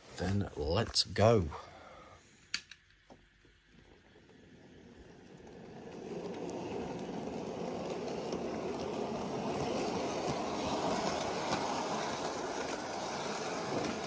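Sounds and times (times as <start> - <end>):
model train motor rumbling: 3.6 - 14.0
wheels clicking over track: 4.1 - 14.0.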